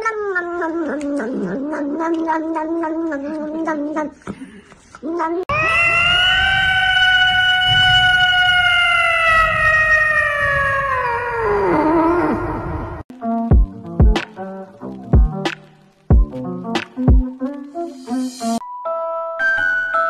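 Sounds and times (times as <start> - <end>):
cat yowling: 0.0 - 4.0, 5.1 - 12.6
cat meow: 5.1 - 12.4.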